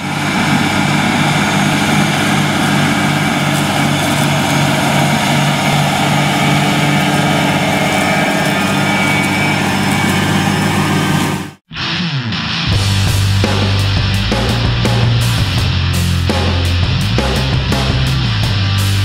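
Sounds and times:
tractor diesel engine under load: 0:00.0 - 0:11.7.

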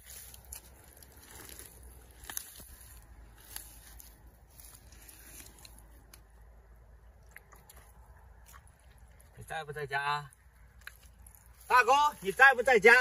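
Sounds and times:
hands digging in wet mud: 0:00.0 - 0:06.3
straw crunching and crackling: 0:00.0 - 0:13.0.

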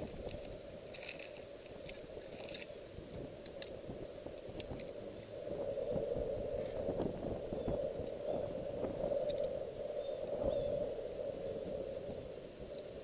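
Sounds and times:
wind buffeting microphone: 0:00.0 - 0:00.9, 0:01.8 - 0:13.0.

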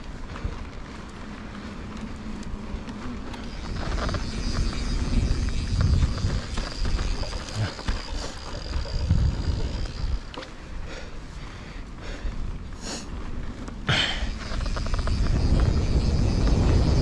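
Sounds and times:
bike rattling: 0:00.0 - 0:17.0
bike tyres on dirt: 0:00.0 - 0:17.0
wind rumble on microphone: 0:00.0 - 0:17.0
high thin whine: 0:13.9 - 0:17.0.

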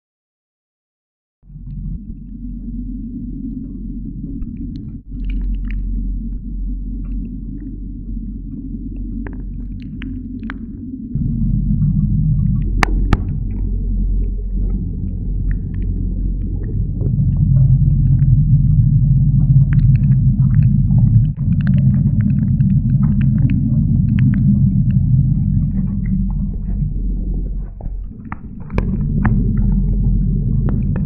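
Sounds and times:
wind buffeting microphone: 0:01.5 - 0:31.0
crack: 0:03.4 - 0:31.0
sharp ticks: 0:07.0 - 0:27.6.

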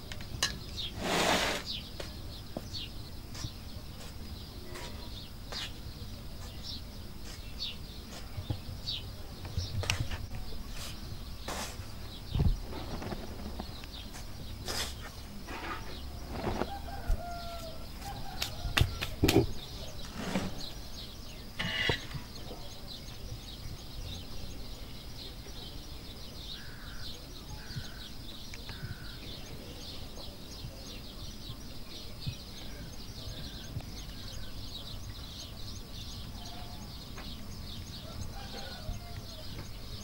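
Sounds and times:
small birds chirping: 0:00.0 - 0:40.0
short bird calls: 0:21.6 - 0:22.6.

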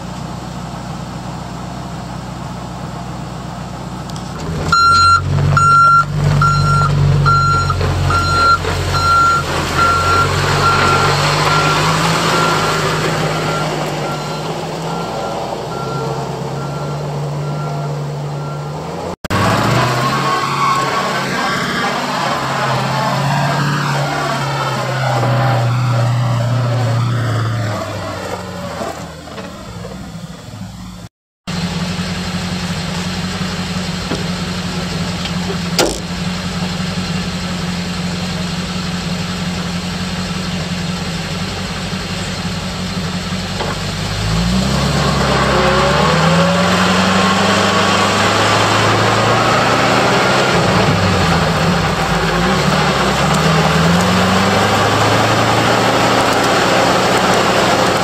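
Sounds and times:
truck engine idling: 0:00.0 - 0:44.3
road noise: 0:00.0 - 0:58.0
truck engine accelerating through gears: 0:00.0 - 0:58.0
sharp knock: 0:35.8 - 0:36.1.

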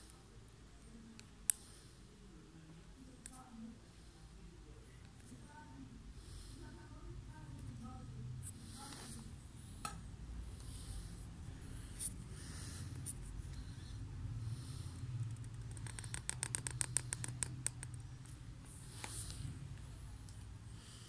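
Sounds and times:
low steady hum: 0:00.0 - 0:21.0
pen nib scratching paper: 0:15.2 - 0:18.1.

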